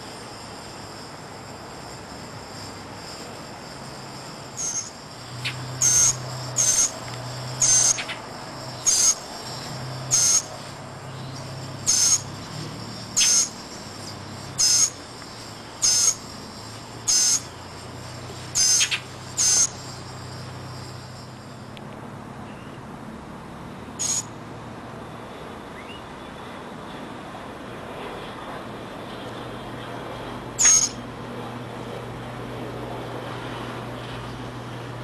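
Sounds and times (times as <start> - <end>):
bird giving harsh calls: 4.6 - 7.0, 7.6 - 8.2, 8.8 - 9.3, 11.9 - 12.3, 13.2 - 13.6, 14.6 - 15.0, 18.6 - 19.8, 24.0 - 24.3, 30.6 - 31.0.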